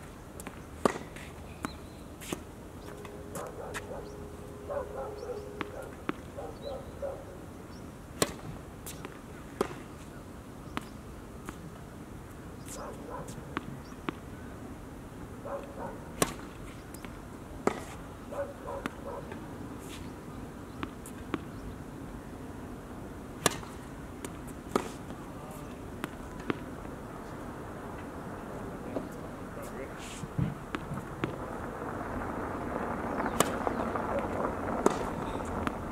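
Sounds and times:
tennis balls struck by rackets: 0.4 - 4.1, 4.9 - 6.6, 8.1 - 11.7, 12.6 - 14.3, 15.6 - 18.0, 18.6 - 21.7, 23.3 - 26.8, 30.4 - 31.4, 33.2 - 33.9, 34.8 - 35.9.

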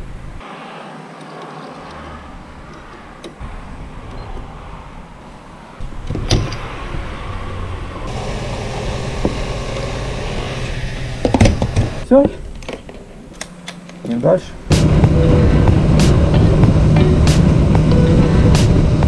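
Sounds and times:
fuel pump whirring: 7.9 - 14.0.

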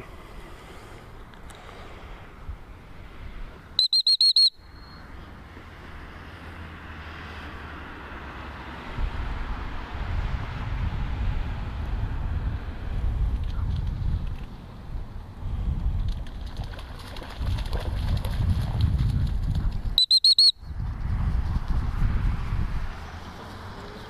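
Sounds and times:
dog whistle trill: 3.8 - 5.0, 20.0 - 20.6
wind rumbling on microphone: 8.5 - 20.0, 20.6 - 24.0.

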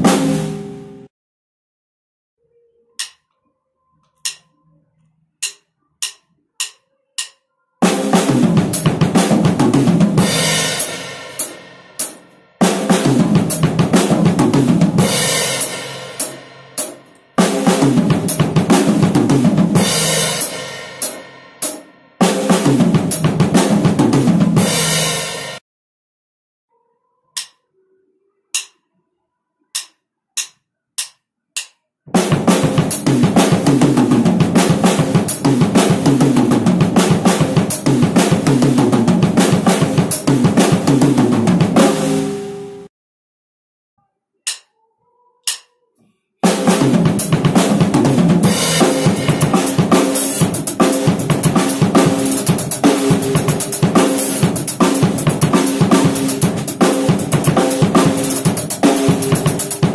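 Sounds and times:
drum kit playing fast fills: 0.0 - 0.6, 7.8 - 25.6, 32.1 - 42.5, 46.4 - 59.9
count-in clicks: 3.0 - 3.4, 4.1 - 4.7, 5.4 - 7.5, 27.4 - 27.7, 28.6 - 28.8, 29.8 - 31.8, 44.5 - 44.7, 45.4 - 45.7.

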